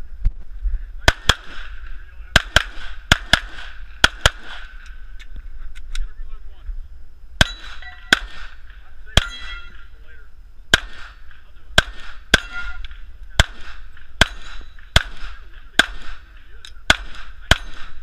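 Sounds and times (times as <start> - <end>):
pistol shots: 1.0 - 5.0, 7.4 - 9.9, 10.7 - 18.0
metallic ring of steel target: 7.4 - 9.9, 10.8 - 16.3, 16.9 - 18.0.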